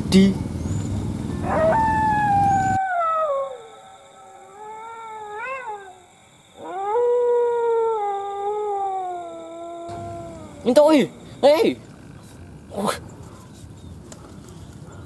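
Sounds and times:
dog howling: 1.3 - 11.4.

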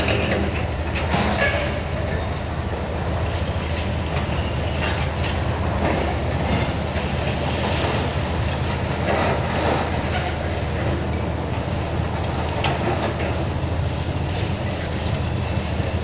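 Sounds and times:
diesel excavator engines running: 0.0 - 16.0.

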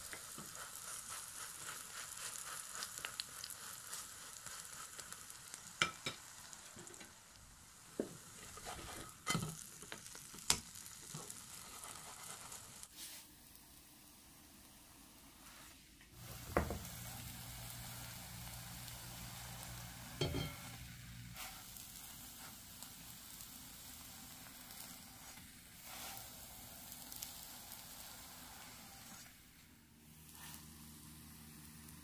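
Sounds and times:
oil sizzling: 0.0 - 32.0.

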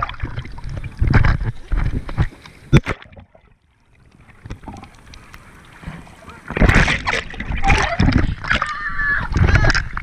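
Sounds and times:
water splashing and sloshing: 0.0 - 10.0.

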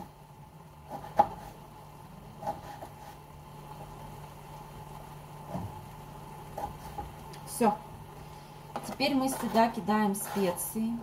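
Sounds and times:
knife chopping on cutting board: 0.9 - 1.6, 2.4 - 3.2, 6.6 - 7.2.

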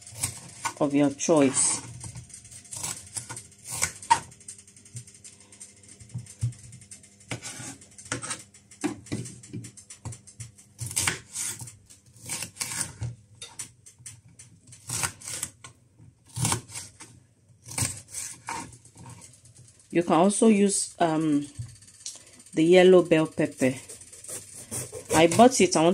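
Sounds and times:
knife cutting pepper: 0.1 - 0.8, 2.7 - 4.3, 10.8 - 13.1, 14.7 - 15.6, 16.2 - 19.2, 23.7 - 25.9.

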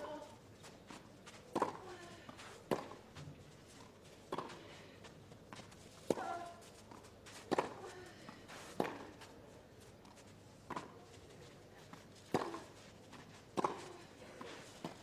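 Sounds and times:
tennis ball struck by rackets: 2.7 - 3.0, 4.3 - 4.6, 8.7 - 9.1, 12.3 - 12.7, 13.5 - 15.0.

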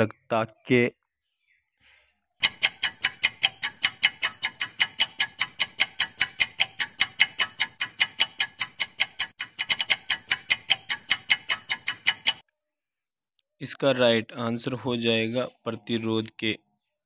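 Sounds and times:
clock ticking: 2.4 - 12.4.

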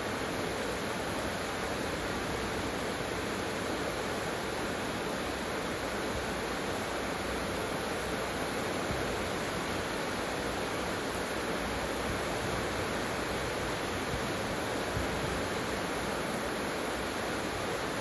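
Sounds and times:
heavy rain: 0.0 - 18.0.

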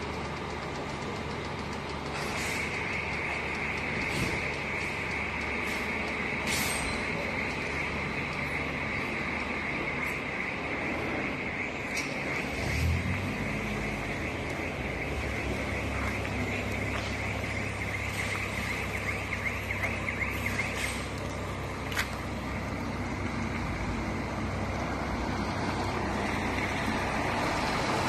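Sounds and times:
diesel bus engine droning: 0.0 - 28.0.

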